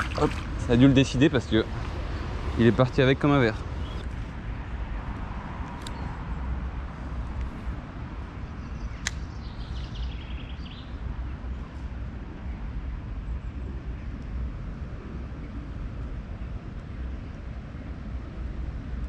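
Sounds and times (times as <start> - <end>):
steady low rumble: 0.0 - 19.0
sharp click: 9.0 - 9.3.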